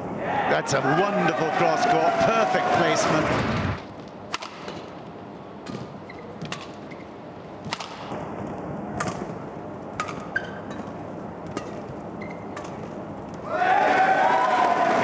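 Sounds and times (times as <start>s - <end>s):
crowd cheering: 0.1s - 3.8s, 13.4s - 15.0s
racket striking shuttlecock: 4.3s - 4.9s, 7.6s - 8.3s, 8.9s - 9.4s, 10.0s - 13.4s
shoe squeaks on court: 6.0s - 7.2s, 10.3s - 10.9s, 12.2s - 12.6s.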